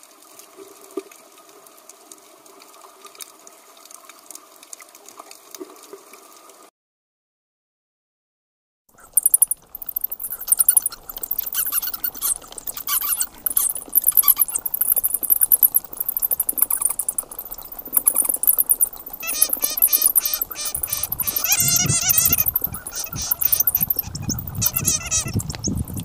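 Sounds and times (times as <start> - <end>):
bats squeaking: 9.0 - 26.0.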